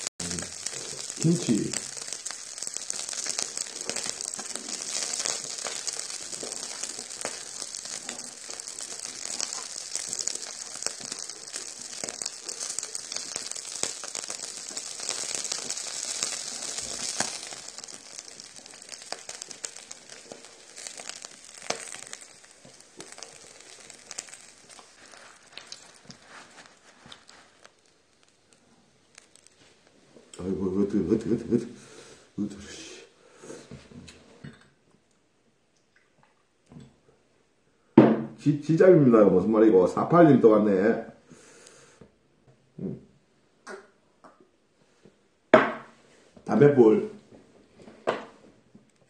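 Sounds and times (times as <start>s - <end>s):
meat sizzling in fat: 0.0s - 32.4s.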